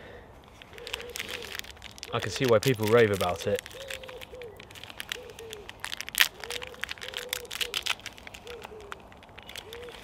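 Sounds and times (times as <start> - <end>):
clicks and rustles: 0.5 - 10.0
pigeon cooing: 0.7 - 1.6, 3.7 - 4.6, 5.2 - 5.7, 6.3 - 7.8, 8.4 - 10.0.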